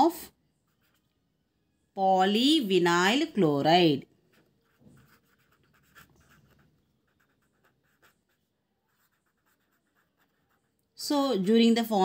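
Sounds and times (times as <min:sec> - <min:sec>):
pen scratching on paper: 0:04.3 - 0:10.7.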